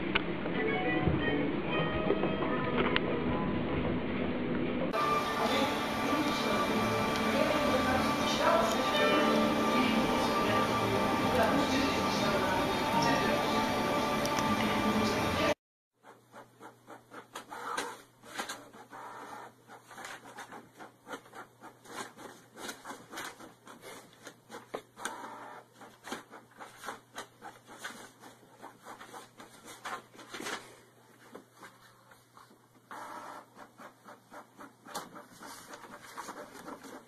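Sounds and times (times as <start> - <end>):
paper rustling: 19.7 - 25.0, 25.7 - 32.6, 33.6 - 37.0.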